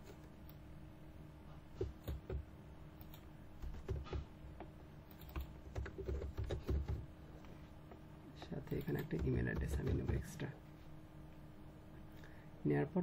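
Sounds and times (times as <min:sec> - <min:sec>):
computer keyboard typing: 0:01.8 - 0:02.4, 0:03.0 - 0:04.3, 0:05.1 - 0:07.0, 0:08.6 - 0:10.4.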